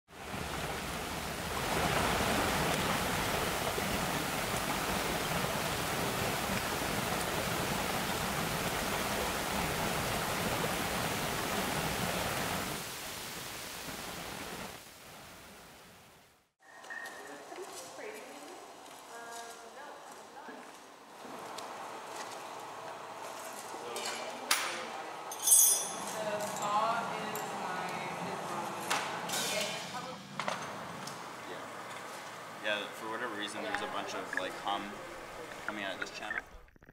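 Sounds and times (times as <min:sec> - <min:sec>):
creek water rushing: 0:00.1 - 0:16.1, 0:30.7 - 0:36.6.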